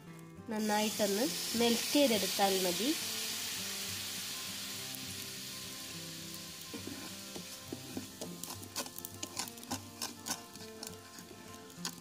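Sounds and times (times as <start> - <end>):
sugar bubbling and hissing in pan: 0.5 - 12.0
wooden spatula scraping pan: 6.8 - 12.0.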